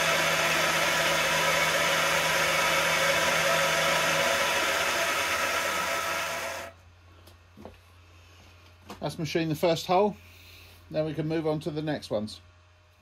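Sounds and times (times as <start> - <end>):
milling machine running: 0.0 - 6.7.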